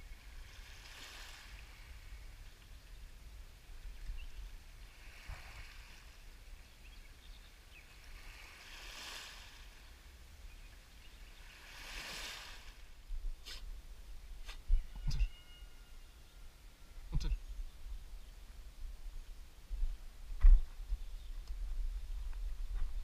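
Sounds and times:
waves washing onto pebbles: 0:00.4 - 0:01.9, 0:08.2 - 0:09.8, 0:11.5 - 0:12.9.

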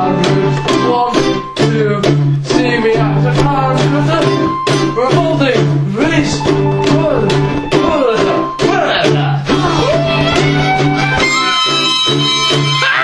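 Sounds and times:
plucked guitar music with beat: 0:00.0 - 0:13.0.

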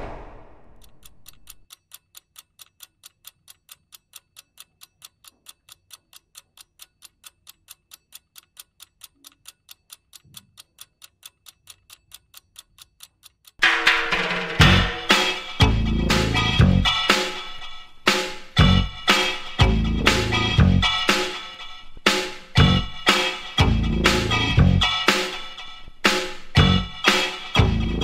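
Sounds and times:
clock-like ticking: 0:00.0 - 0:28.0
musical chord: 0:13.6 - 0:17.4.

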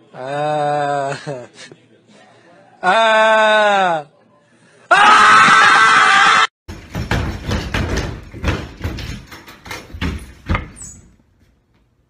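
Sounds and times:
heavy thumps and knocks: 0:06.7 - 0:11.2.

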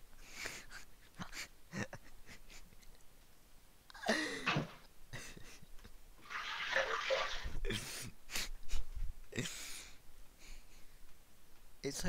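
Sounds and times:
kitchen tap running: 0:06.2 - 0:07.6.

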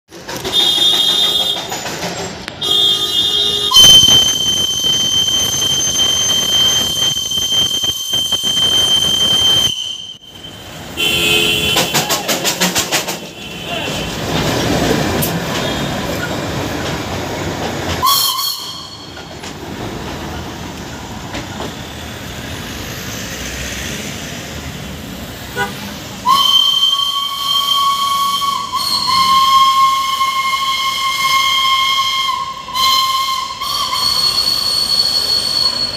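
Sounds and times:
passing train hissing and rushing: 0:00.1 - 0:35.9
steam locomotive whistle blasts: 0:00.4 - 0:01.7, 0:02.6 - 0:12.6, 0:18.0 - 0:19.3, 0:25.6 - 0:35.9.

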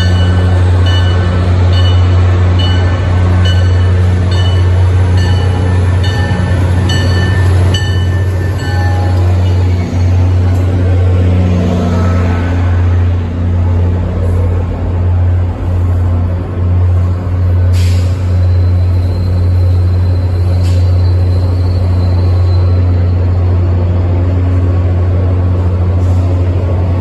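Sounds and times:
locomotive bell ringing: 0:00.0 - 0:09.9
diesel locomotive engine drone: 0:00.0 - 0:27.0
train coaches rumbling: 0:00.0 - 0:27.0.

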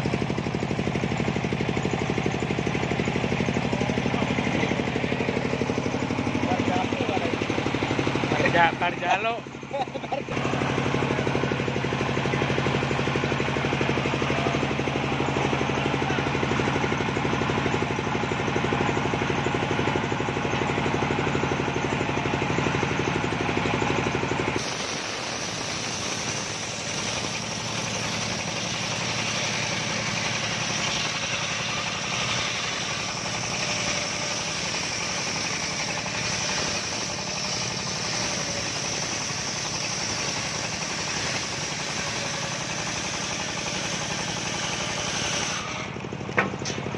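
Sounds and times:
saw blade high whine: 0:00.0 - 0:46.9
sawmill engine running: 0:00.0 - 0:46.9
circular saw ripping log: 0:24.6 - 0:46.9.

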